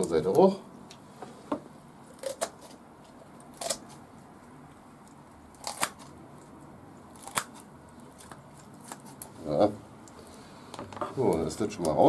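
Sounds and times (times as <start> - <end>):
poultry shears snipping bones: 3.5 - 4.0, 5.5 - 6.5, 7.1 - 9.3.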